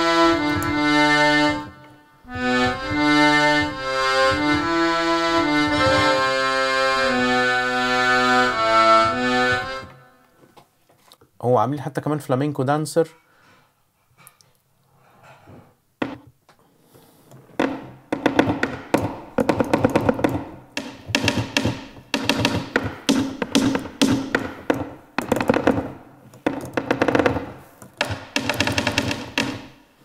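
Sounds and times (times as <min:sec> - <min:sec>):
shoe heel stomps on wooden floor: 0:17.6 - 0:29.7.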